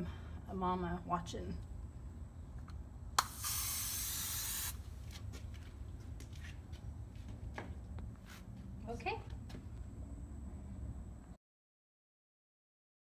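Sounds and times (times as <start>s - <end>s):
aerosol spray can hissing: 3.2s - 4.8s.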